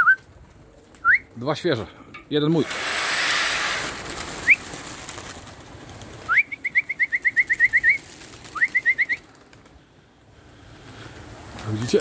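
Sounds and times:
whistled slide and trill: 2.7 - 4.7, 6.2 - 9.3.

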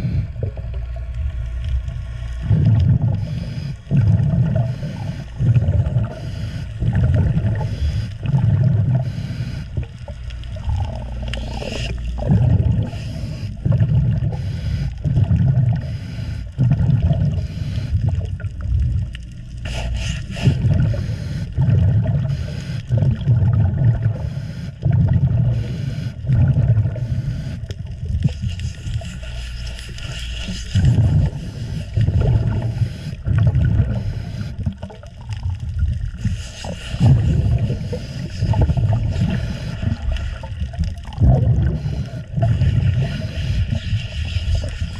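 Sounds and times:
scuba regulator bubbling exhalations: 0.0 - 44.9
scuba regulator hissing inhalations: 3.0 - 9.9, 11.2 - 18.2, 19.6 - 23.1, 24.0 - 35.1, 36.1 - 40.6, 41.5 - 44.9.

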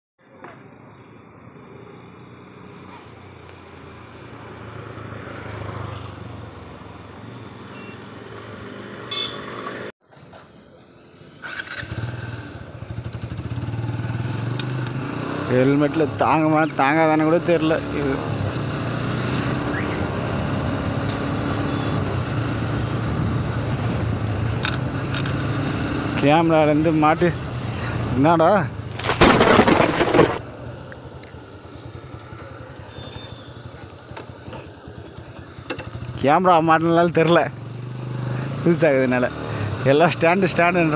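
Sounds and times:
wind and road noise: 0.2 - 40.9
motorcycle engine cruising: 2.2 - 9.9, 11.4 - 40.9
motorcycle engine idling: 30.6 - 36.2.

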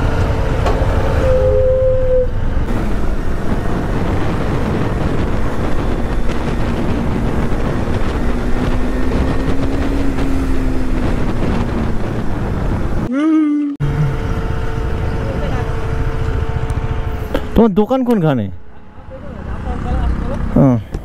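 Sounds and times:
motorcycle engine: 0.0 - 13.1, 13.8 - 17.7, 18.5 - 21.0
wind noise on microphone: 0.0 - 13.1.

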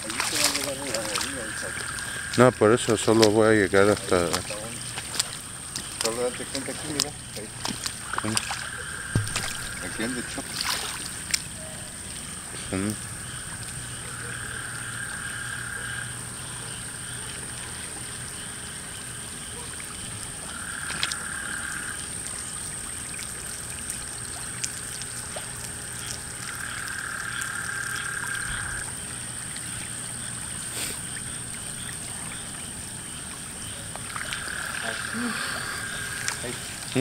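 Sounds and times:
frogs trilling: 0.0 - 37.0.

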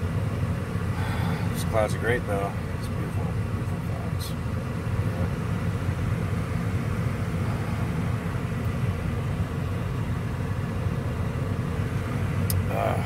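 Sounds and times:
car engine rumble in cabin: 0.0 - 13.0.

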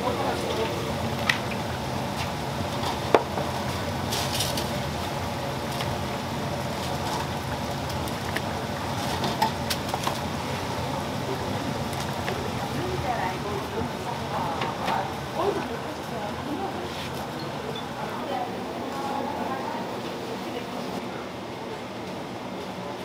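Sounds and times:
oil sizzling in deep fryer: 0.2 - 15.4.

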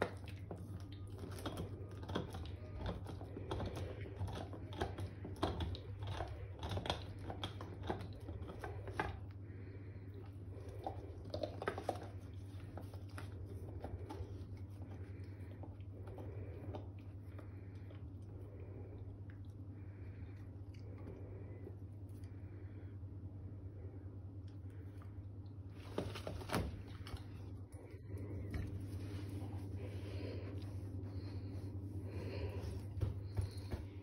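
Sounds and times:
dog teeth clicking on chew: 0.0 - 9.2
steady low hum: 0.0 - 34.0.

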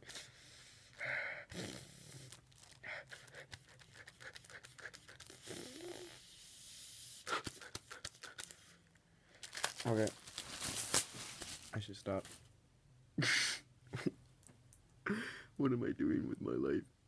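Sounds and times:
person breathing: 0.0 - 9.6, 15.0 - 15.6
plastic bag crinkling: 2.3 - 2.8, 9.3 - 12.4.

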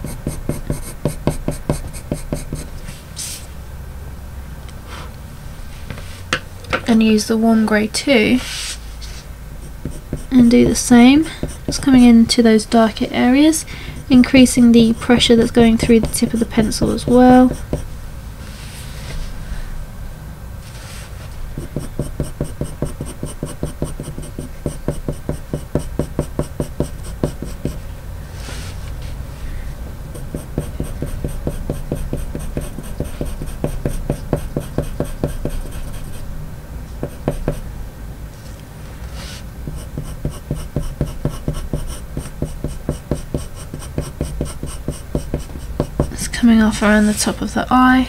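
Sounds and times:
pencil scratching on paper: 0.0 - 2.7, 9.6 - 12.2, 14.0 - 17.9, 21.6 - 27.8, 30.1 - 36.3, 37.0 - 37.6, 39.2 - 47.3.

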